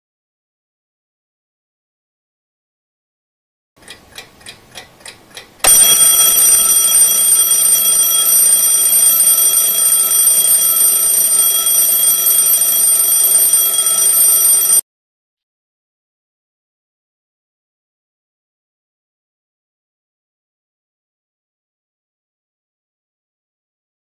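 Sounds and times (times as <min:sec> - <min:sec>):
alarm clock ticking: 0:03.8 - 0:14.8
alarm clock bell ringing: 0:05.7 - 0:14.8.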